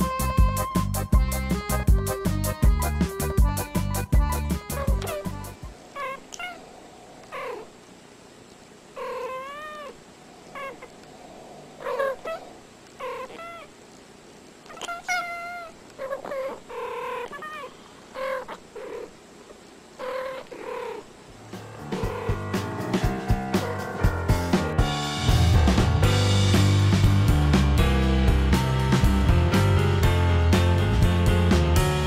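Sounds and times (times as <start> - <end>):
cats chirping trills: 3.6 - 7.8, 8.9 - 13.8, 14.6 - 22.6
cats meowing: 4.8 - 7.7, 9.0 - 13.8, 14.7 - 19.1.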